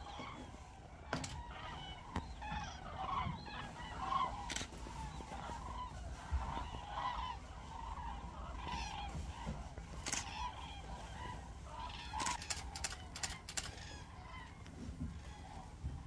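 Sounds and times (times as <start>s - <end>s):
distant cranes trumpeting: 0.0s - 16.0s
sharp clicks: 12.2s - 13.8s.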